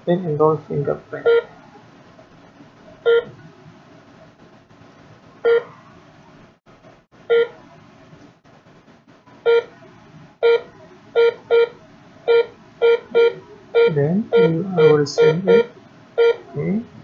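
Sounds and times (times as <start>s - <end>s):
short electronic beeps: 12.3s - 16.4s.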